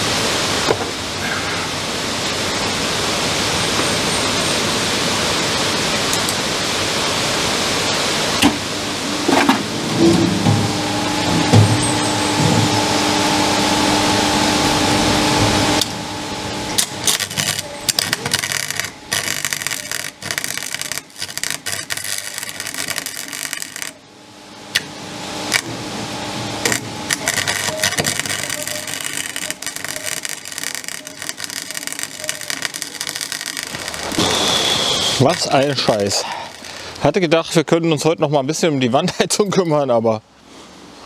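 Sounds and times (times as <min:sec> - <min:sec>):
welder arc crackling: 0:12.3 - 0:37.3.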